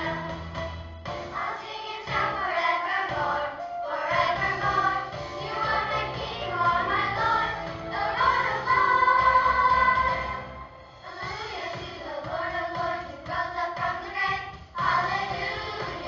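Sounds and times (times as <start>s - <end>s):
children's choir singing: 0.0s - 0.6s, 1.3s - 16.0s
instrumental accompaniment: 0.0s - 11.8s.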